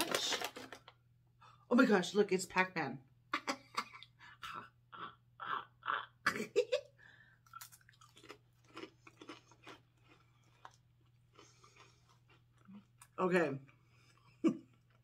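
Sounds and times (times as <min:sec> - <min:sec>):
potato chip crunching: 0:00.0 - 0:01.0, 0:07.4 - 0:13.4.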